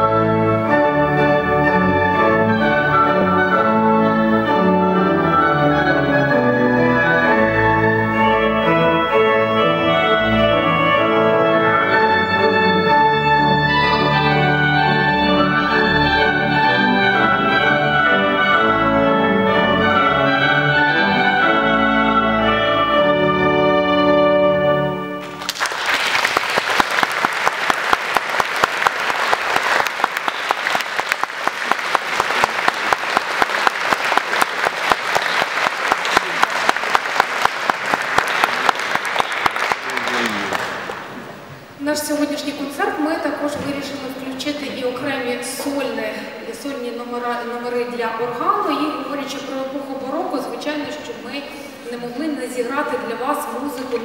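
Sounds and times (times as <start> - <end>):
pipe organ: 0.0 - 25.8, 27.2 - 41.8
audience applause: 25.2 - 41.3.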